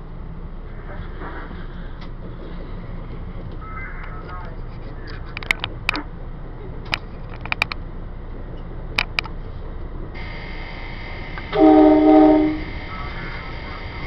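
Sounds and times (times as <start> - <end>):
train rolling noise: 0.0 - 14.0
steady high whine: 10.1 - 14.0
train horn blast: 11.4 - 12.9.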